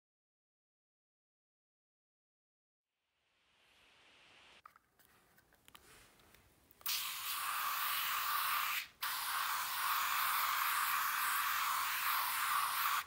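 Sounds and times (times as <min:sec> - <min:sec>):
aerosol can spraying: 0:06.8 - 0:13.0.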